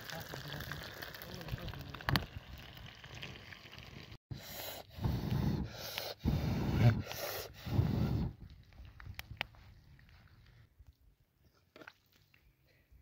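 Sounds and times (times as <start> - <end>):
fish sizzling in a pan: 0.0 - 4.1.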